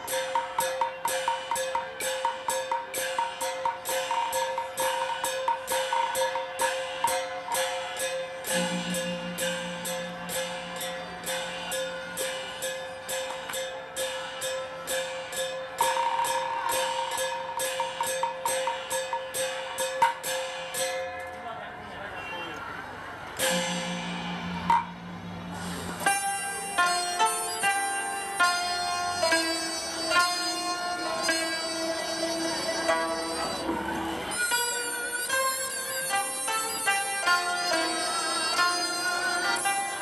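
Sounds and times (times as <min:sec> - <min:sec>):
wooden percussion knocking: 0:23.4 - 0:25.4.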